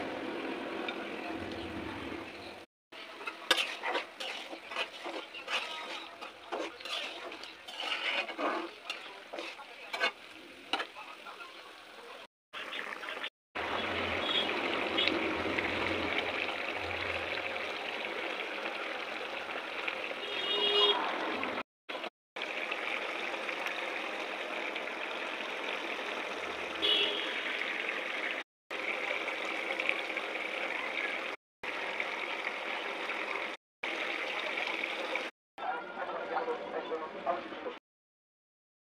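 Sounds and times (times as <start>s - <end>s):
curry bubbling in a pan: 3.0s - 20.9s, 22.4s - 35.3s.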